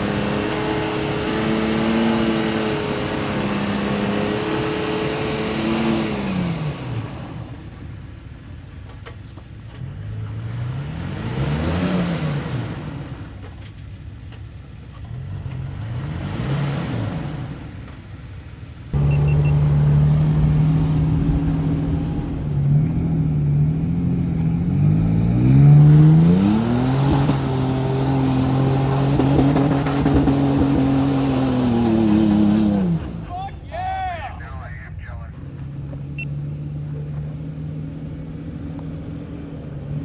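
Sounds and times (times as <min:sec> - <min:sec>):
loud engine revving: 0:00.0 - 0:07.5, 0:09.9 - 0:13.3, 0:15.1 - 0:17.7, 0:19.0 - 0:33.3
truck engine revving: 0:00.0 - 0:07.6, 0:09.8 - 0:13.4, 0:15.0 - 0:17.8, 0:18.9 - 0:33.6.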